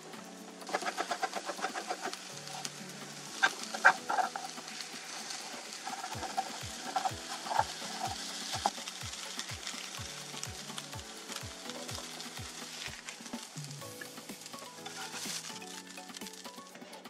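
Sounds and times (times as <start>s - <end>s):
background music with soft beat: 0.0s - 17.0s
food sizzling in a frying pan: 0.0s - 17.0s
plastic spatula scraping a pan: 0.7s - 10.0s, 14.7s - 15.9s.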